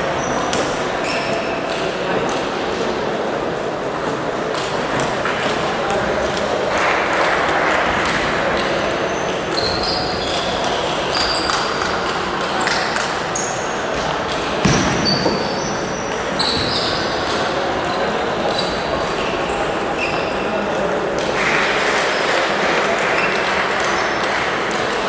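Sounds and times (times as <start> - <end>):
background chatter: 0.0 - 25.0
shoes squeaking on floor: 0.2 - 1.8, 9.1 - 17.5, 18.4 - 20.6
loud thump: 14.6 - 15.5.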